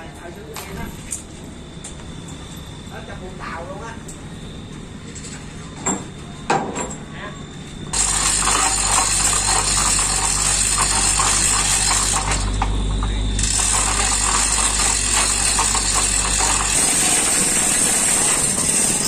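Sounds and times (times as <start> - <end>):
chain hoist ratchet clattering: 8.0 - 12.6, 13.4 - 19.0.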